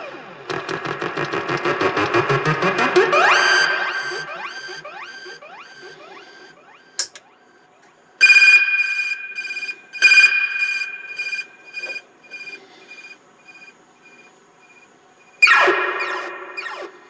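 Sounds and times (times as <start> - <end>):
loud high siren tones with echoes: 0.5 - 7.6, 8.2 - 17.0
echoing rising siren sweeps: 1.4 - 7.6, 8.2 - 13.7, 15.4 - 17.0.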